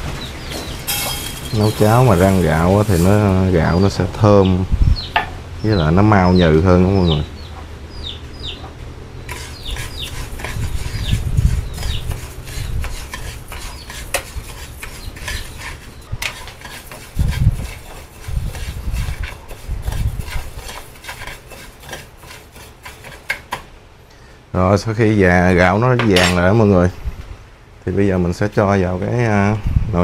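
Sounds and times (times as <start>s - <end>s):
low rumbles: 0.0s - 13.6s
metal spoon scraping pan: 0.6s - 3.9s, 9.3s - 23.7s, 26.0s - 26.4s.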